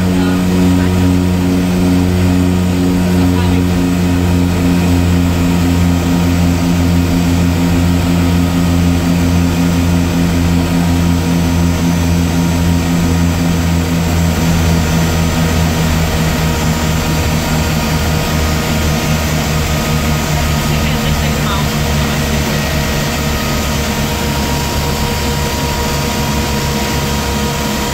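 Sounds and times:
turboprop engines droning: 0.0 - 27.9.

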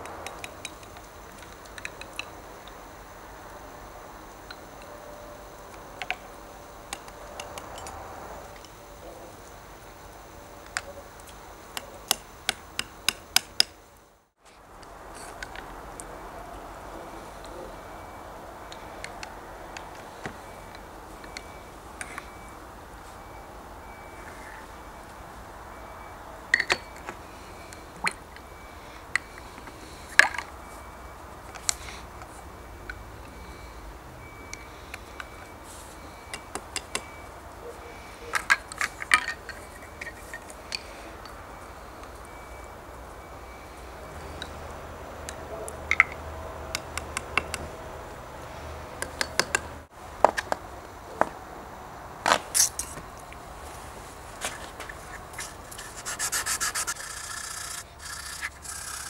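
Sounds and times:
sandpaper rustling: 53.8 - 59.0.

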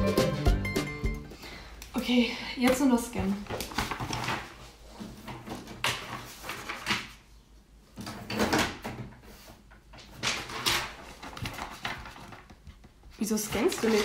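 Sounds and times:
paper rustling: 3.2 - 7.3, 9.3 - 14.0.

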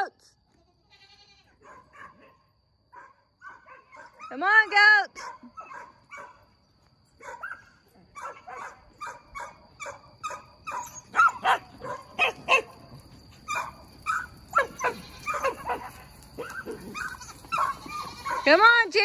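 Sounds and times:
dog barking: 1.6 - 4.4, 5.2 - 6.4, 7.2 - 12.8, 13.5 - 18.6.

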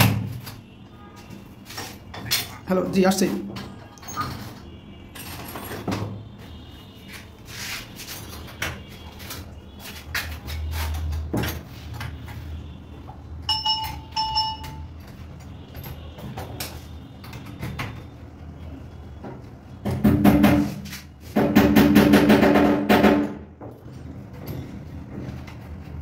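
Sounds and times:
short beeping tones: 13.5 - 14.9.

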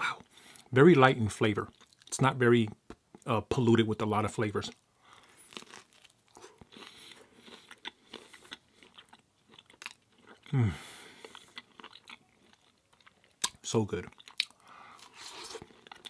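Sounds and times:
chewing crisp crust: 4.7 - 16.0.

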